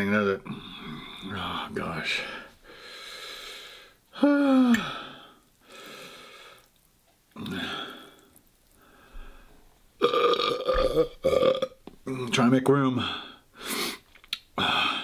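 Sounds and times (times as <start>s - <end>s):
man burping: 10.0s - 12.3s.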